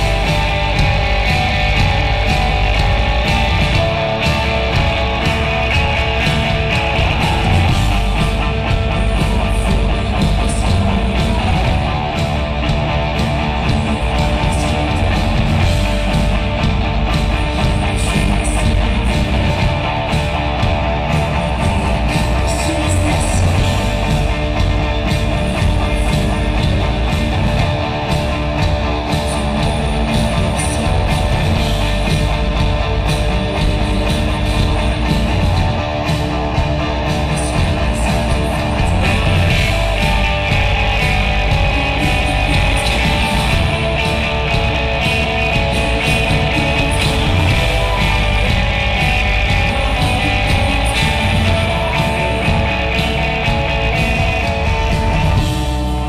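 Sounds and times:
electric guitar: 0.0s - 56.0s
live alternative rock band: 0.0s - 56.0s.

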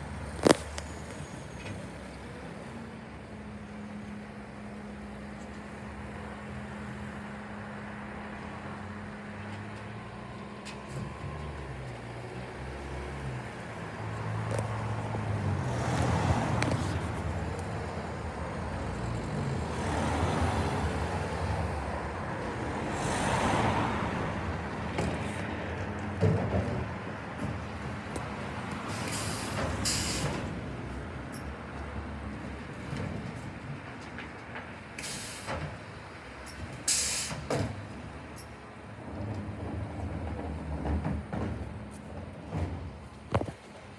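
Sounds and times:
air brake hisses: 28.9s - 30.4s, 35.0s - 35.6s, 36.9s - 37.5s.

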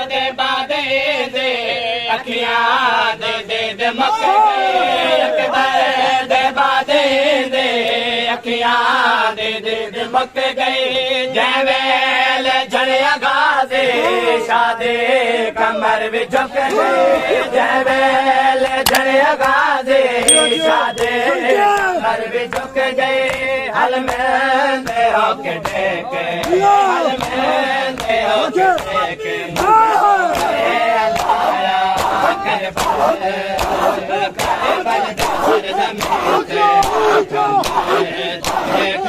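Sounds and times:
men chanting in unison: 0.0s - 20.2s, 21.2s - 39.0s.

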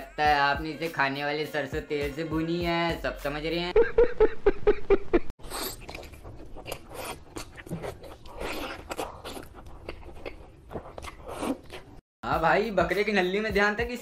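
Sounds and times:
man chewing food: 5.4s - 12.0s.

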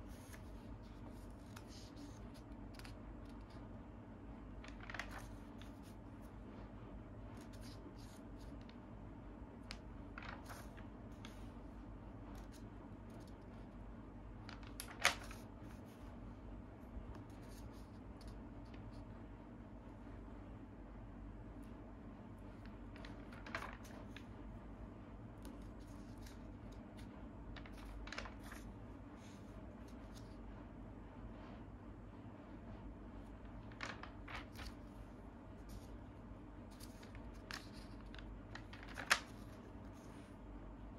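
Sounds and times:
magazine pages turning: 0.0s - 3.6s, 4.5s - 6.0s, 9.6s - 11.5s, 14.4s - 16.1s, 22.6s - 24.3s, 25.4s - 30.4s, 33.4s - 36.0s, 36.6s - 40.3s
low steady hum: 0.0s - 40.9s.

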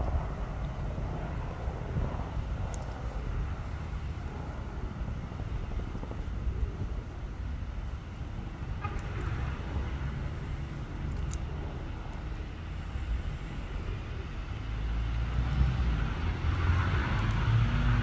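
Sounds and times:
low outdoor rumble: 0.0s - 18.0s
faint clicks: 10.9s - 12.3s.

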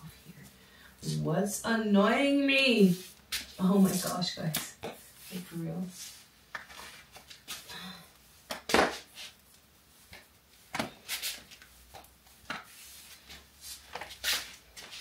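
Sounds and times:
clothing rustling: 9.0s - 15.0s.

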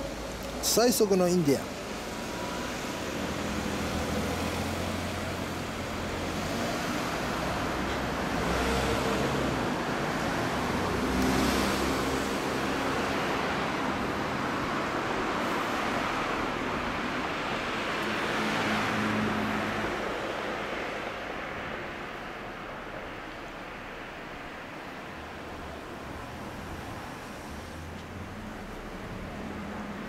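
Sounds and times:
traffic rumble: 0.0s - 30.0s
vehicles passing: 0.0s - 30.0s.

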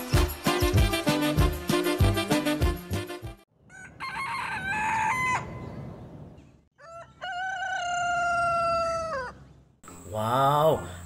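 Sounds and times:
music with steady beat: 0.0s - 3.4s
rooster crowing: 3.6s - 5.8s, 6.7s - 9.5s.

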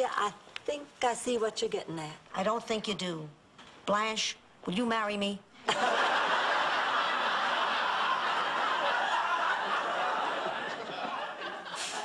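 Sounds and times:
studio audience laughing: 5.7s - 12.0s.

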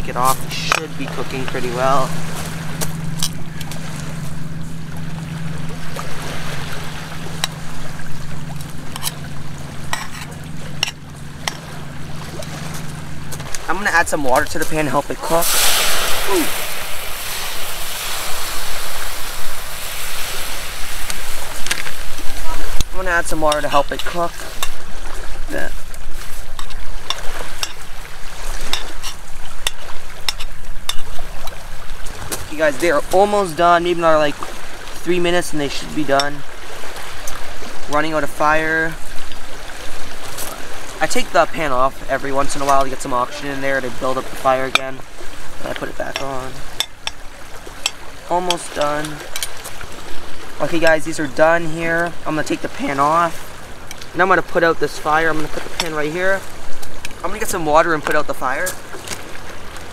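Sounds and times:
waves washing onto pebble shore: 10.8s - 31.2s
hot dogs sizzling in frying pan: 15.4s - 21.6s.

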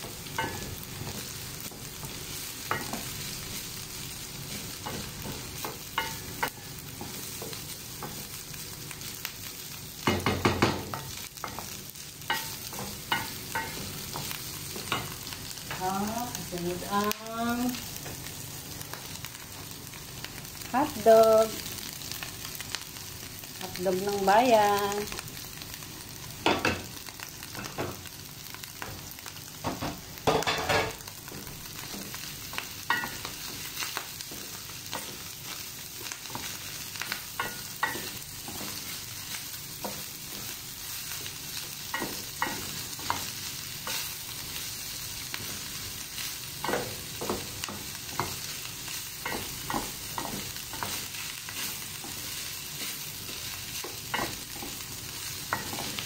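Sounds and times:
meat sizzling in frying pan: 0.0s - 56.0s
spatula tapping and scraping pan: 0.1s - 3.2s, 4.5s - 8.3s, 10.0s - 15.8s, 29.6s - 40.5s, 41.2s - 44.1s, 46.6s - 48.5s, 49.2s - 56.0s.

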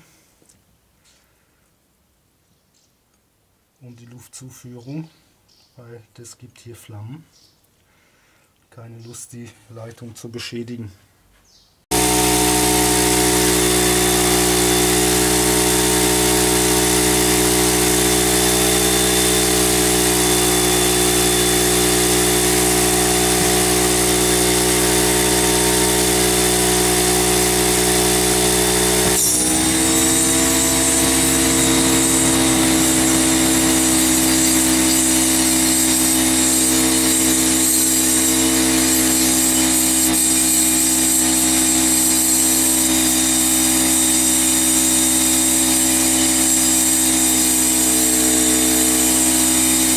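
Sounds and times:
air compressor motor hum: 11.9s - 49.9s.

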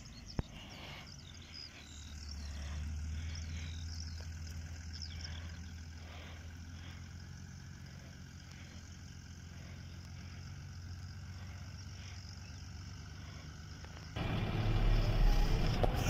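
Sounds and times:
distant tractor engine humming: 0.0s - 16.0s.

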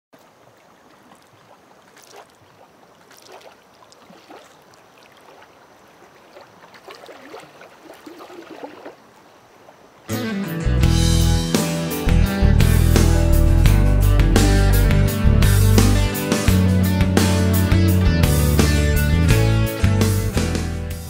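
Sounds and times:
little splashes: 0.2s - 10.1s
waves lapping against rocky shore: 0.2s - 10.1s
music: 10.1s - 21.0s.

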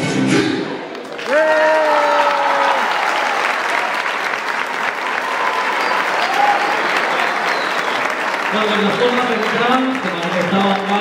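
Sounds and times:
audience clapping and cheering: 0.8s - 11.0s.

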